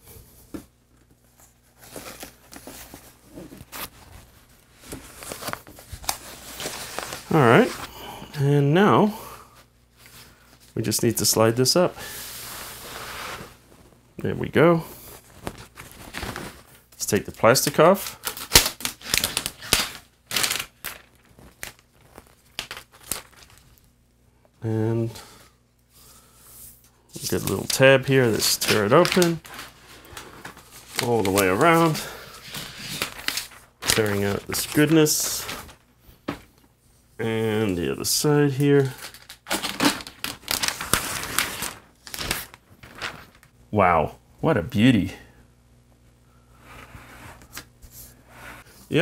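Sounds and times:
packaging wrap rustling and scraping: 0:01.6 - 0:07.9, 0:12.0 - 0:13.9, 0:15.0 - 0:16.8, 0:17.9 - 0:23.8, 0:27.2 - 0:35.8, 0:38.5 - 0:43.5
plastic film being peeled: 0:17.9 - 0:23.8, 0:27.2 - 0:35.8, 0:38.9 - 0:43.5.

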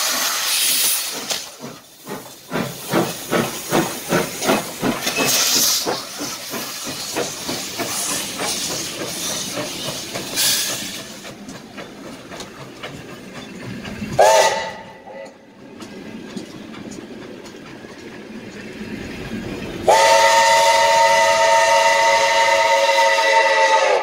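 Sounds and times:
steam hissing: 0:00.0 - 0:15.8, 0:18.6 - 0:24.0
rhythmic locomotive exhaust beat: 0:00.0 - 0:24.0
train rolling: 0:00.0 - 0:24.0
steam whistle blast: 0:14.2 - 0:15.3, 0:19.9 - 0:24.0.

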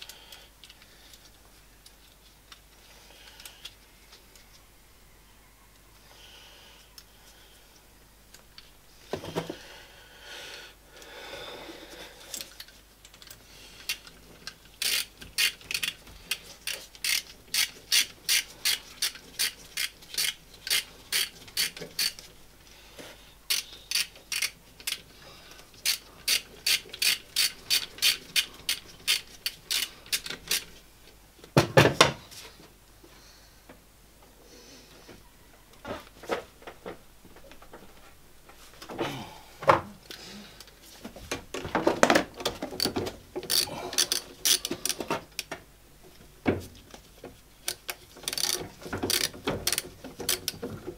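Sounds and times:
ratchet spanner clicking: 0:14.8 - 0:22.2, 0:23.5 - 0:25.0, 0:25.8 - 0:30.7, 0:43.5 - 0:45.5, 0:47.6 - 0:50.6.

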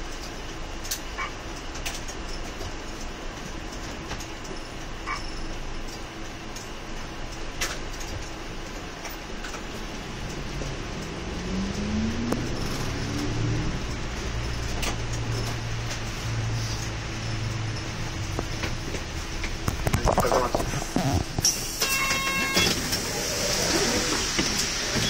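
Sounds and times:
bus engine running: 0:00.0 - 0:25.0.

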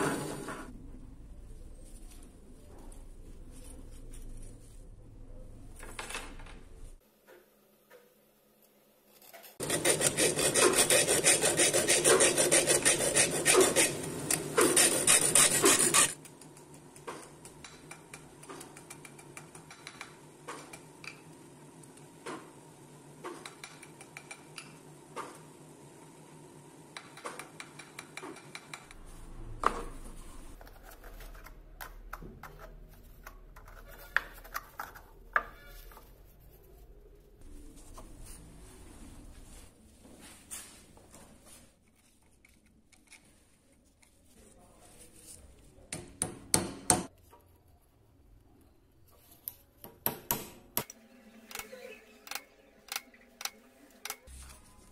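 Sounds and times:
abrasive strip rasping on metal: 0:09.2 - 0:16.2.

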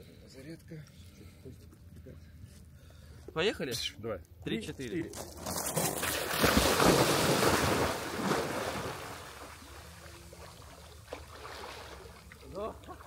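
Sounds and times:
people splashing in sea water: 0:05.7 - 0:13.0
soft wash of water: 0:06.4 - 0:13.0.

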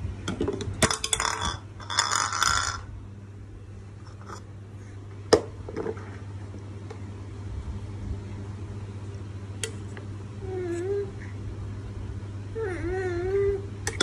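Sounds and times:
steady low hum: 0:00.0 - 0:14.0
infant whimpering: 0:12.6 - 0:13.7.

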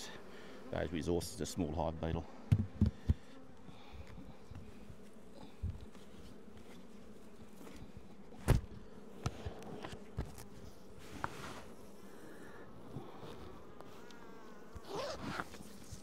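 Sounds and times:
bees buzzing: 0:00.0 - 0:16.0.

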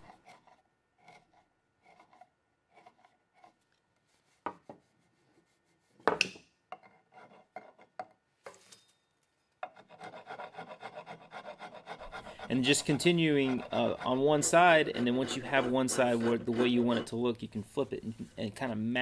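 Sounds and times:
file rasping wood: 0:00.0 - 0:03.6, 0:09.7 - 0:17.2
carving gouge scraping wood: 0:00.0 - 0:06.2, 0:06.8 - 0:08.0, 0:09.6 - 0:17.3.

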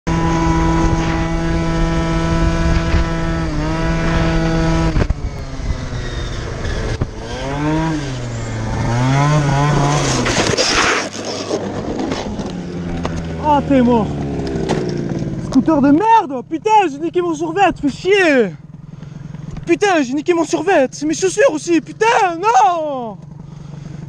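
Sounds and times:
scooter scraping on road: 0:00.1 - 0:16.0, 0:18.6 - 0:19.7
scooter engine revving: 0:00.1 - 0:24.0.

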